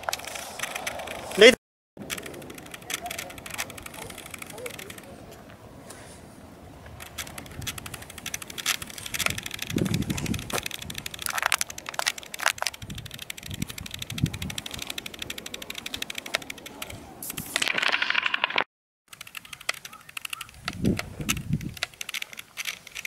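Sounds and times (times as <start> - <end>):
footsteps crunching on stony trail: 8.3 - 12.7.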